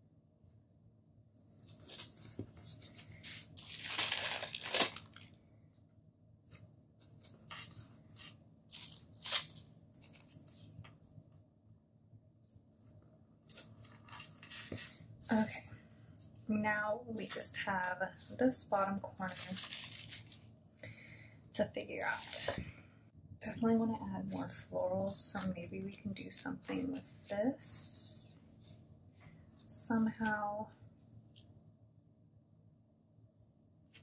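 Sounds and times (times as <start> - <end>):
light rubbing on paper: 1.4 - 3.6, 13.5 - 16.6
paper rustling: 1.5 - 5.4, 6.5 - 11.0, 13.4 - 15.6, 18.2 - 20.4.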